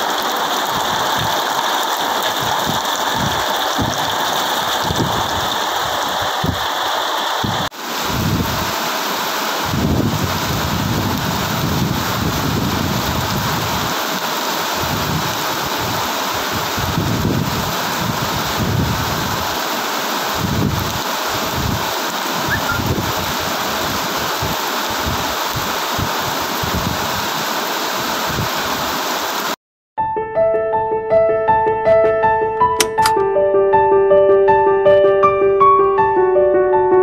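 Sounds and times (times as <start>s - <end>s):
heavy rain on a metal roof: 0.0s - 29.6s
wind rumble on microphone: 2.3s - 6.7s, 7.4s - 8.8s, 9.6s - 14.0s, 14.7s - 19.6s, 20.3s - 29.0s.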